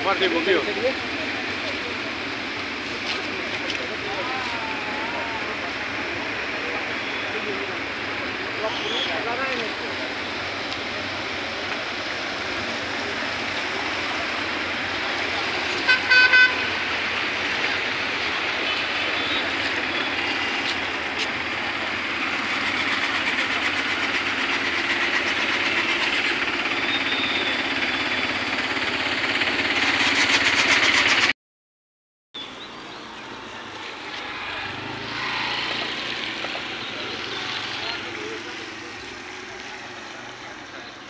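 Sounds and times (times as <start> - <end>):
floodwater rushing: 0.0 - 26.7.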